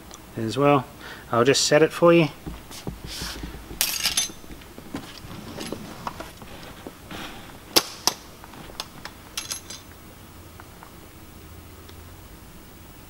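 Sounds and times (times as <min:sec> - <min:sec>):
metal trap clicking and clanking: 0:03.8 - 0:04.4, 0:09.4 - 0:09.9.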